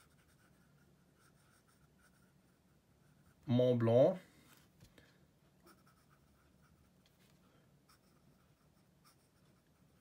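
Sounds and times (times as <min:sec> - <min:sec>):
fountain pen scratching paper: 0:00.0 - 0:03.4.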